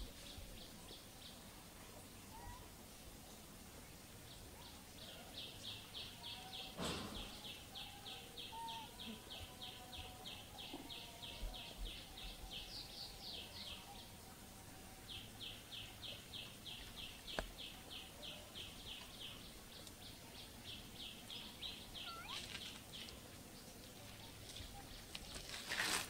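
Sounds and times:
high chirping call: 6.0s - 9.2s, 21.4s - 22.5s.

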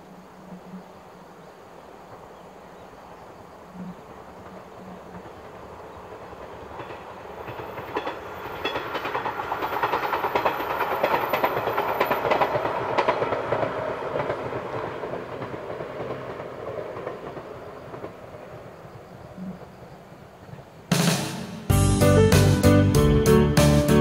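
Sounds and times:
electric train passing: 0.0s - 24.0s
train wheels clicking over rail joints: 4.1s - 21.2s.

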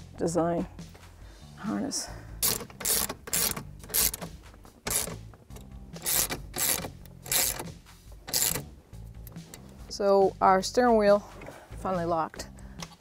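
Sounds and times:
ratchet wrench clicking: 2.4s - 7.7s, 8.3s - 8.7s.

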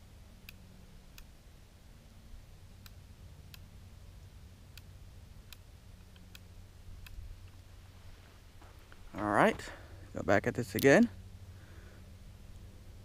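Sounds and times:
low steady hum: 0.0s - 13.0s
faint sharp clicks: 0.4s - 1.3s, 2.8s - 3.7s.

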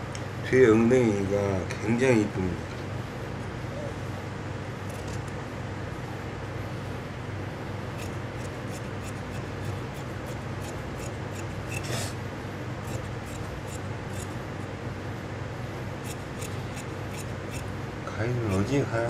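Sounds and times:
steady low hum: 0.0s - 19.0s
shears snipping cloth: 8.0s - 12.2s, 12.8s - 14.4s, 16.0s - 17.7s, 18.4s - 18.8s.

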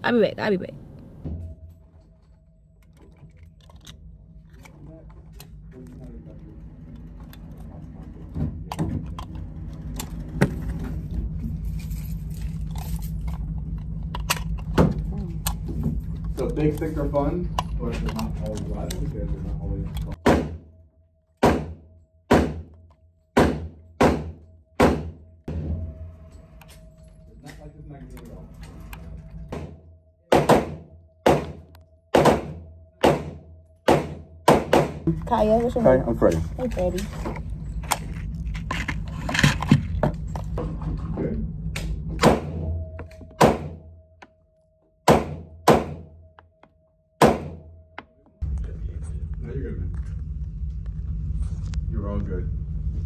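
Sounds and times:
pistol shots with echo: 30.3s - 31.6s, 32.2s - 35.0s.

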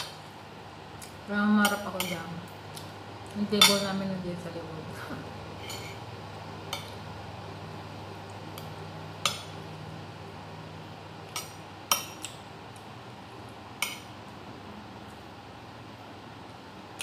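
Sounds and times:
steady low hum: 0.0s - 17.0s
cutlery clinking on a plate: 3.6s - 3.9s.

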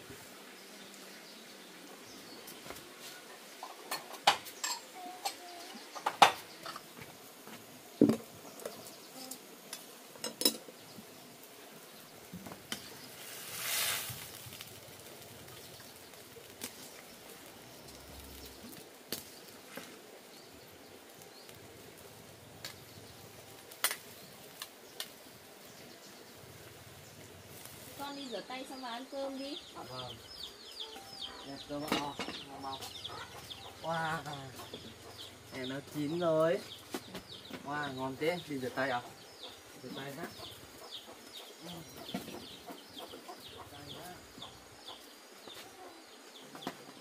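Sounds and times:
dishes and utensils clinking: 3.6s - 6.8s
brief hiss: 13.2s - 14.3s.

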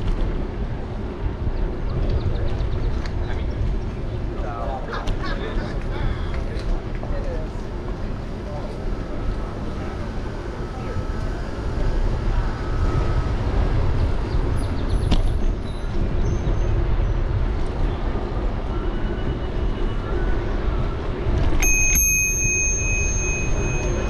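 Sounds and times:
wind and tyre noise: 0.0s - 24.0s
bicycle bell ringing: 21.6s - 24.0s.

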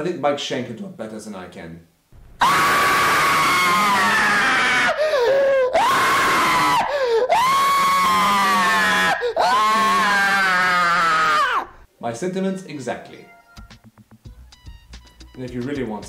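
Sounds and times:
man screaming: 2.4s - 11.8s.

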